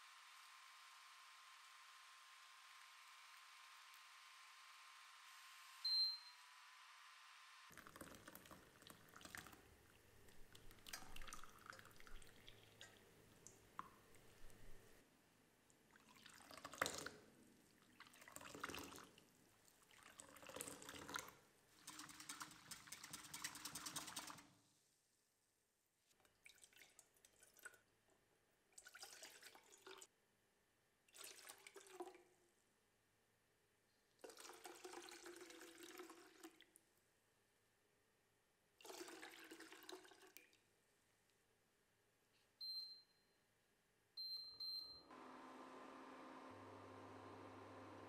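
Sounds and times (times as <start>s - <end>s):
liquid pouring into saucepan: 7.7s - 14.9s, 15.9s - 24.4s, 26.4s - 27.9s, 28.8s - 30.1s, 31.1s - 32.3s, 34.2s - 36.8s, 38.8s - 40.6s
liquid trickling and dripping: 7.7s - 15.0s.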